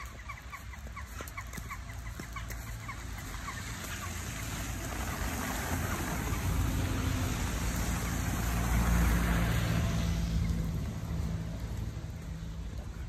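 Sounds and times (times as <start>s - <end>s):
low engine hum: 0.0s - 13.0s
vehicle driving past: 1.2s - 13.0s.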